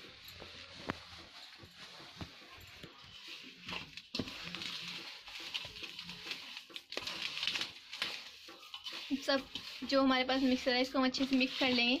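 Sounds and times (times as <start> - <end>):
hand mixing dry mixture in bowl: 0.0 - 12.0.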